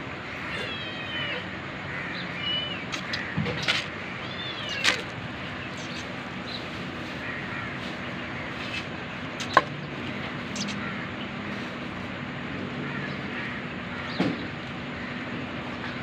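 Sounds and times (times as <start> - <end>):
low background hum: 0.0 - 16.0
kitten mewing: 0.4 - 1.5, 4.2 - 5.2.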